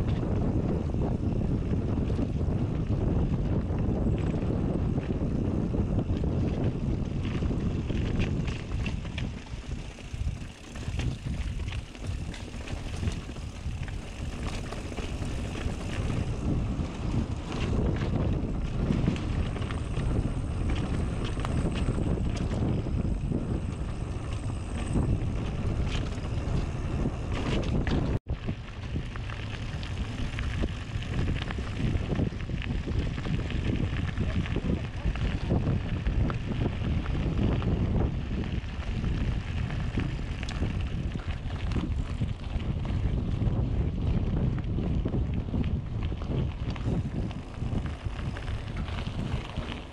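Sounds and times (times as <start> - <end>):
bike clicks and rattles: 0.0 - 49.9
bike tyres on dirt trail: 0.0 - 49.9
wind buffeting microphone: 0.0 - 49.9.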